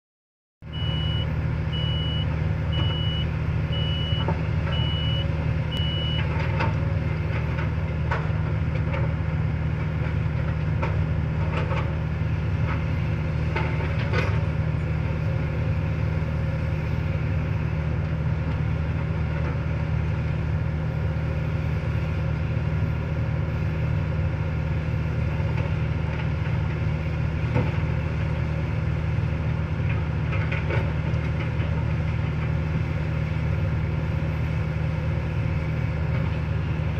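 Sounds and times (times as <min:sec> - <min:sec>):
excavator diesel engine running: 0:00.6 - 0:36.9
high beeping: 0:00.8 - 0:04.2, 0:05.8 - 0:06.2.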